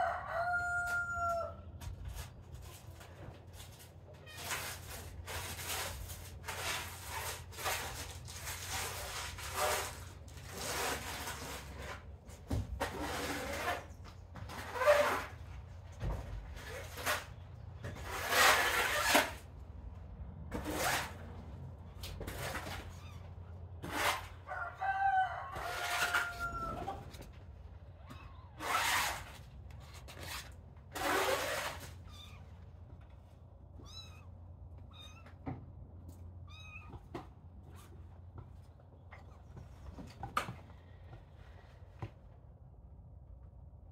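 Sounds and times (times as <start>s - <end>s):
kitten squeaky calls: 22.9s - 23.3s, 28.0s - 28.6s, 32.0s - 32.5s, 33.8s - 35.4s, 36.4s - 37.0s
kitten meowing: 32.1s - 32.4s, 33.8s - 34.3s, 34.9s - 35.3s, 36.4s - 37.0s.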